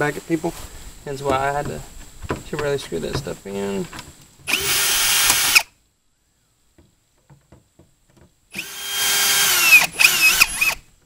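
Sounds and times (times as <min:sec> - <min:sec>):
drill motor whining: 0:04.5 - 0:05.7, 0:08.5 - 0:10.8.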